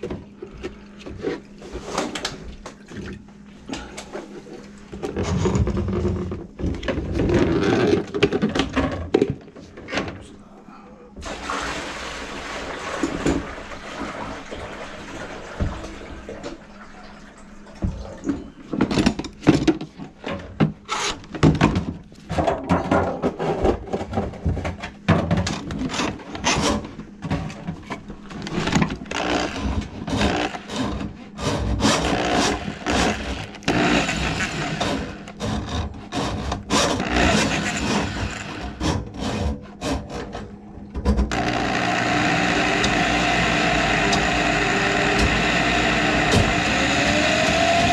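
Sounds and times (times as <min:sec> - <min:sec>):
knocks clanks and scrapes: 0:04.2 - 0:10.3, 0:17.9 - 0:41.4.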